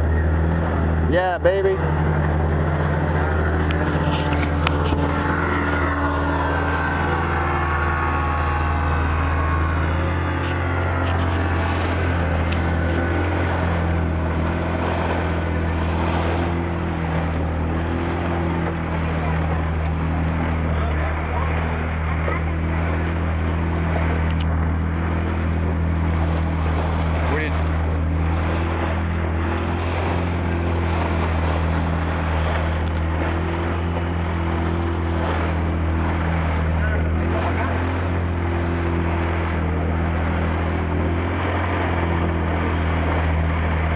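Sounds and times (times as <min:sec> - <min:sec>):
small boat motor droning: 0:00.0 - 0:43.9
water splashing along hull: 0:00.0 - 0:43.9
wind: 0:00.0 - 0:43.9.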